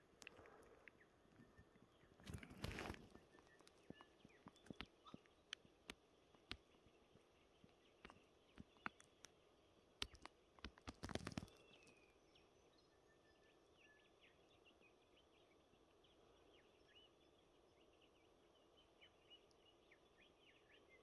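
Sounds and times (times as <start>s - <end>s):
faint small-bird chirps: 0.0s - 21.0s
sharp clicks and knocks: 3.5s - 6.9s, 7.6s - 9.3s, 10.0s - 11.9s.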